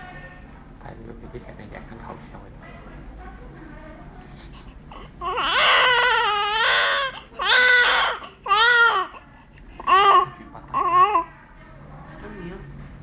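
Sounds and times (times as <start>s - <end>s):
newborn baby crying: 4.9s - 11.4s.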